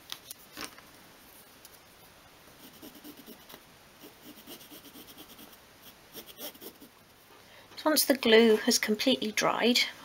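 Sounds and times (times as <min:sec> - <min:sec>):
pencil scratching across card: 0:02.6 - 0:06.9.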